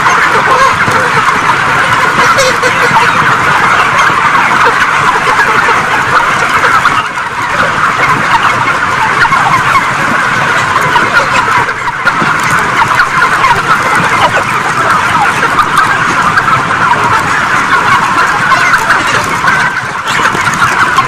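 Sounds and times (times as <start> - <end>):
chickens clucking and peeping: 0.0 - 21.0.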